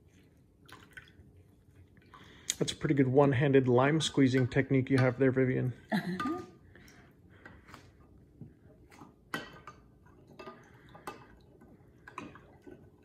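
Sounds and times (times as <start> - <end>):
liquid stirring: 4.1 - 13.0.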